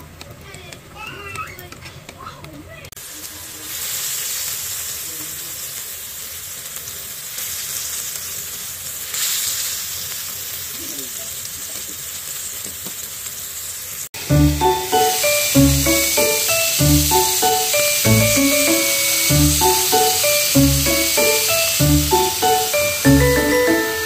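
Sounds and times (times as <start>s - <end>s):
steak sizzling in grill pan: 3.0s - 24.0s
background music with a beat: 14.2s - 24.0s.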